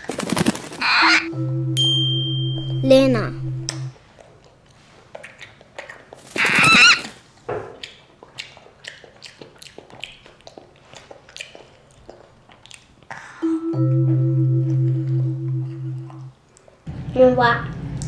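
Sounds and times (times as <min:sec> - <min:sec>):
child chewing broccoli: 0:03.9 - 0:13.4, 0:16.0 - 0:16.8.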